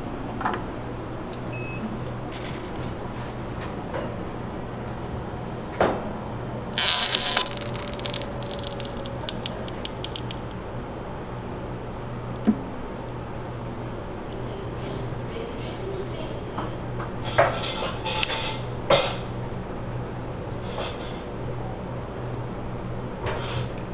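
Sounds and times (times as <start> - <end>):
hissing burst: 6.8 - 10.6
ice cream crackling: 6.8 - 10.7.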